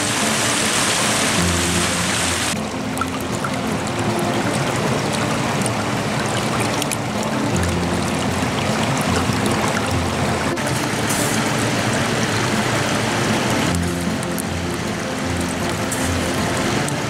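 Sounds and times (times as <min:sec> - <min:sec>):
low background music: 0:00.0 - 0:17.0
water washing against rocky shore: 0:00.0 - 0:17.0.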